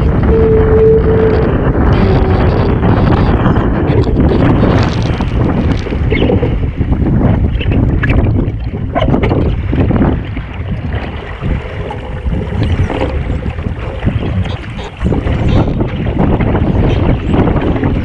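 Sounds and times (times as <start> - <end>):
wind buffeting the microphone: 0.0 - 18.0.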